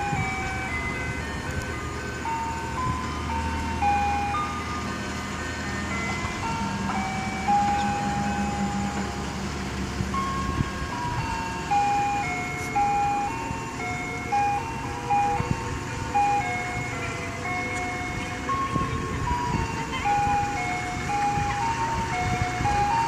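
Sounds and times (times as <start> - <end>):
ice cream truck jingle: 0.0 - 23.0.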